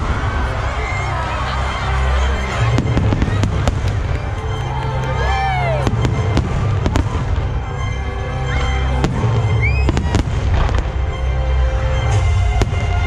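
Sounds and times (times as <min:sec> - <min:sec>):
music playing: 0:00.0 - 0:13.0
fireworks bangs: 0:02.2 - 0:05.0, 0:05.7 - 0:07.8, 0:09.0 - 0:11.0.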